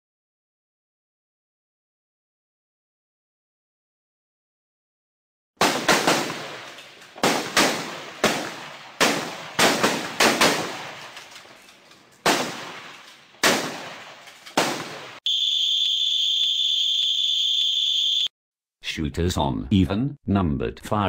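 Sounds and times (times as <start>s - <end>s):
rifle shots with echo: 5.6s - 11.2s, 12.2s - 15.2s
high whistle blast: 15.3s - 18.3s.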